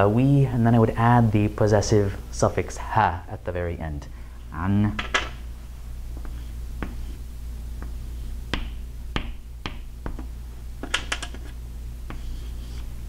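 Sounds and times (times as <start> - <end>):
chalk tapping and scratching: 6.2 - 7.2, 7.8 - 13.0.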